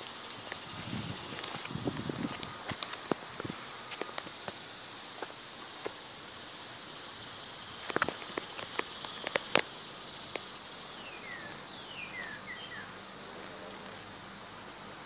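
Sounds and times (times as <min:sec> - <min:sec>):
insects chirring in distance: 0:00.0 - 0:15.0
sharp clicks and rustles: 0:01.3 - 0:04.6, 0:07.8 - 0:09.7.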